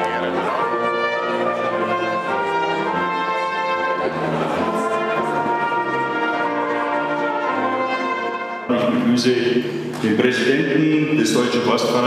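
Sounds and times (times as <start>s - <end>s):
brass ensemble playing chords: 0.0s - 9.9s.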